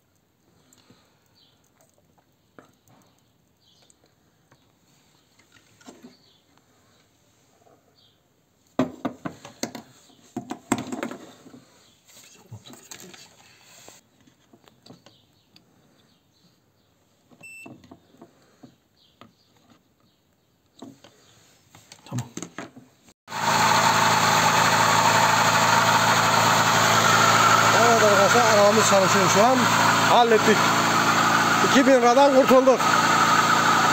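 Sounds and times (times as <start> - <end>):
car engine running: 23.3 - 33.9.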